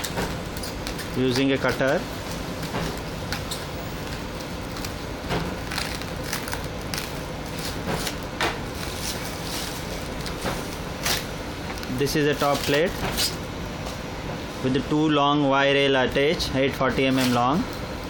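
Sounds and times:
plastic wrap crinkling: 0.0s - 13.4s.

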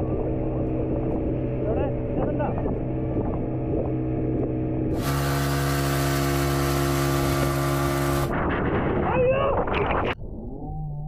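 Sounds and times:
motorboat engine running: 0.0s - 8.4s.

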